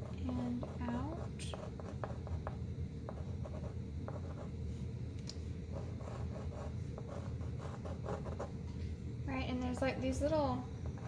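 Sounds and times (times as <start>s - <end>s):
low background noise: 0.0s - 11.0s.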